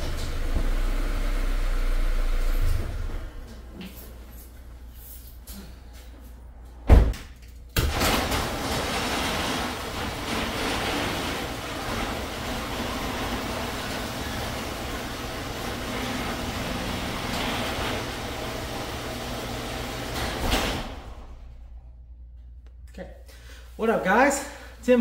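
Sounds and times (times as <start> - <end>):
garage door rumbling down: 0.0 - 3.7, 6.8 - 22.2.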